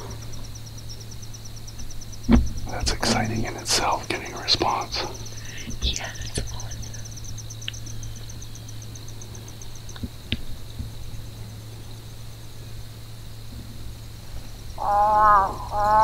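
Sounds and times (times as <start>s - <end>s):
high-pitched insect whine: 0.0s - 16.0s
insect chirping: 0.0s - 16.0s
faint clicks: 7.6s - 8.3s.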